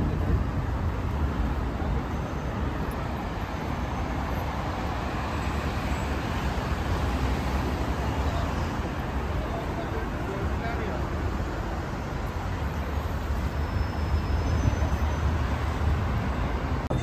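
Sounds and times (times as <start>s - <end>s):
dense highway traffic: 0.0s - 17.0s.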